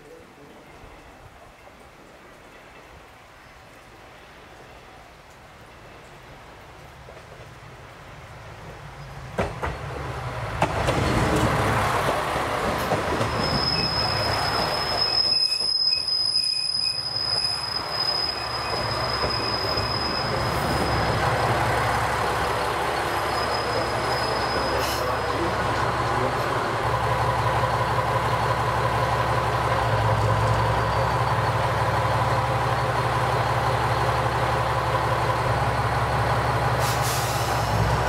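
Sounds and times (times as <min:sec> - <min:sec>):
train wheels clacking over rail joints: 0:09.3 - 0:10.0, 0:10.6 - 0:13.8
high steady brake squeal: 0:13.2 - 0:21.3, 0:23.1 - 0:25.5.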